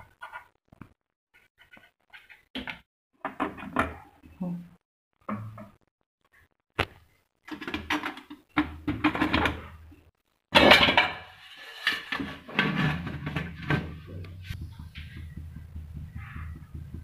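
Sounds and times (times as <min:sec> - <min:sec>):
metal pot clattering and knocking: 0:07.5 - 0:09.8, 0:10.5 - 0:14.1.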